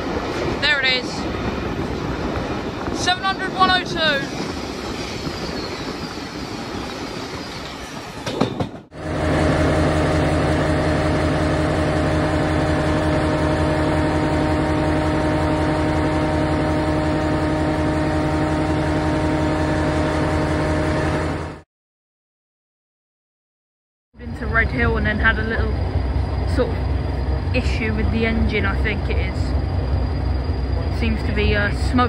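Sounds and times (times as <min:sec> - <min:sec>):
moving train rushing: 0:00.0 - 0:21.6, 0:24.3 - 0:32.0
diesel engine droning: 0:08.9 - 0:21.6, 0:24.2 - 0:32.0.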